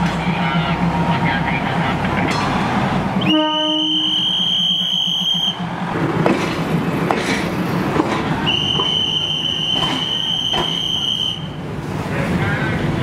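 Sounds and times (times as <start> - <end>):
train clicks and clatter: 0.0 - 3.3, 4.0 - 13.0
passenger train rumbling: 0.0 - 13.0
high-pitched train whistle: 3.2 - 5.6, 8.4 - 11.6.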